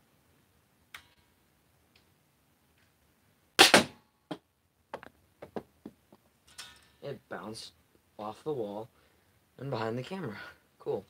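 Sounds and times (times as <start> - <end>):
dart blaster sharp double crack: 3.6 - 4.0.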